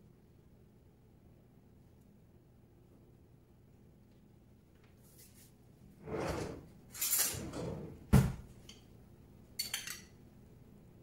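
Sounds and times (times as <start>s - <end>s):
items scraping on steel worktop: 5.2s - 8.1s.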